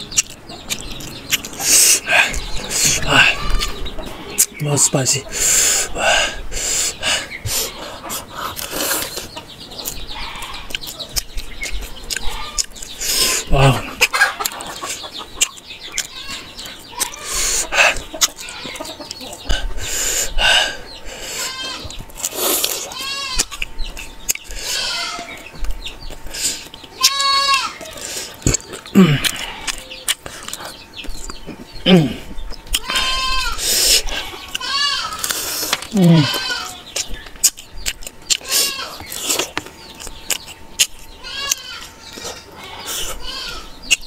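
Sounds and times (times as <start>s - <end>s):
chickens clucking: 0.0s - 44.0s
close-up chewing food: 0.0s - 44.0s
goat bleating: 2.3s - 4.4s, 10.1s - 10.7s, 12.2s - 12.7s, 16.1s - 19.0s, 21.4s - 22.0s, 22.8s - 23.6s, 24.6s - 25.5s, 27.0s - 28.0s, 32.8s - 33.6s, 34.4s - 35.3s, 35.9s - 36.8s, 41.2s - 42.0s, 42.6s - 43.8s.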